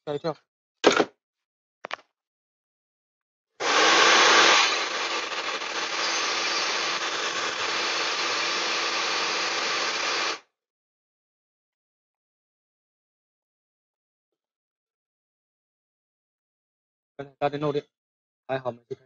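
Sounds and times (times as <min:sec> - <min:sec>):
hot-air gun blowing: 0:03.6 - 0:10.4.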